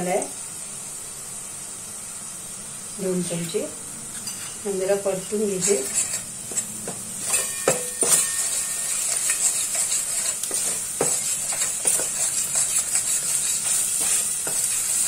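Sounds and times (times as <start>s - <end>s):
paste sizzling in hot oil: 0.0s - 15.0s
metal spoon scraping pot: 5.2s - 15.0s.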